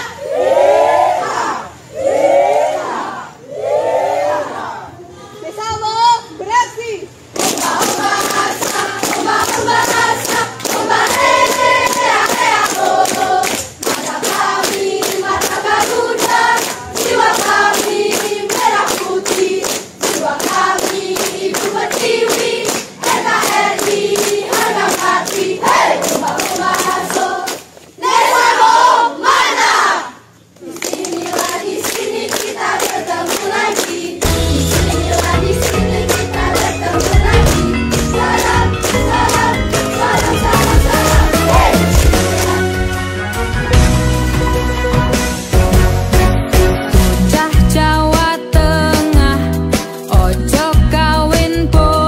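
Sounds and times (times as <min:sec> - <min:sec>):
rhythmic hand clapping: 0:07.3 - 0:27.8, 0:30.6 - 0:43.1
girls singing in unison: 0:07.4 - 0:42.8.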